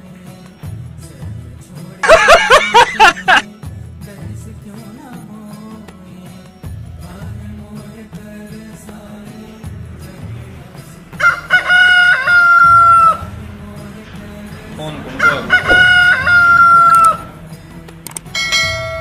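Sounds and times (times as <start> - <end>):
rooster crow ringtone: 11.2 - 13.2, 15.2 - 17.3.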